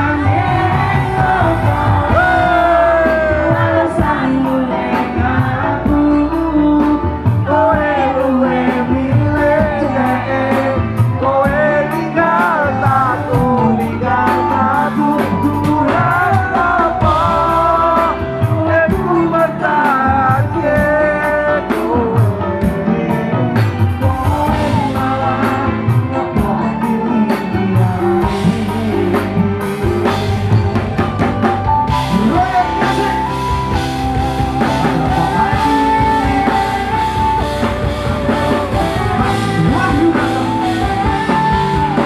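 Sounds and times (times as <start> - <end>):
person singing: 0.0 - 30.8, 31.8 - 42.0
drums playing a steady beat: 0.0 - 42.0
electric guitar: 0.0 - 42.0
keyboard: 0.0 - 42.0.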